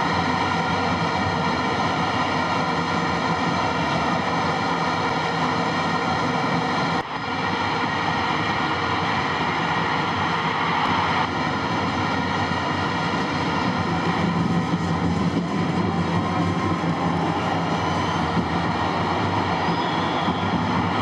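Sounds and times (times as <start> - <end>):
stadium crowd noise: 0.0 - 21.0.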